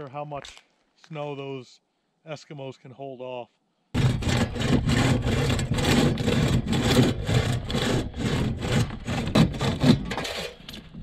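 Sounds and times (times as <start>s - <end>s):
saw cutting wood: 4.0s - 10.8s.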